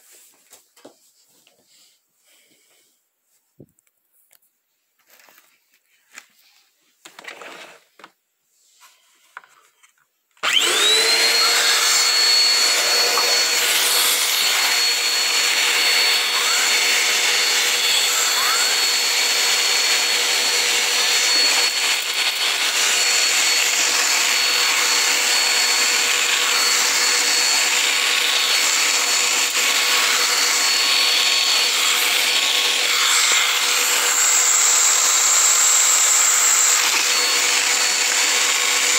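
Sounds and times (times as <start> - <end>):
vacuum cleaner motor whining: 7.0 - 8.2, 10.4 - 38.9.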